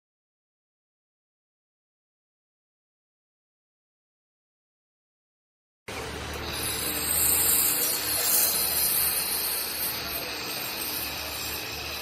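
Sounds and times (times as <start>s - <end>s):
welder hissing: 5.9s - 12.0s.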